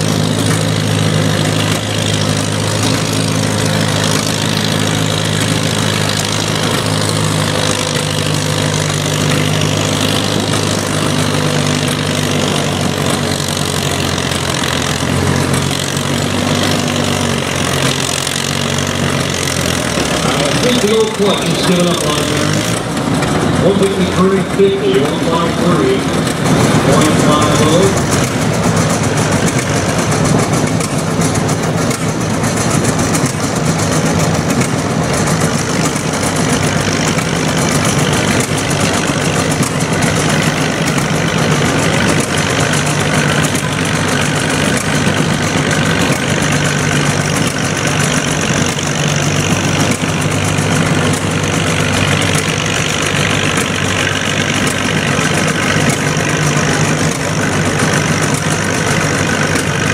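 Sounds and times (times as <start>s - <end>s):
tractor engines idling: 0.0s - 59.9s.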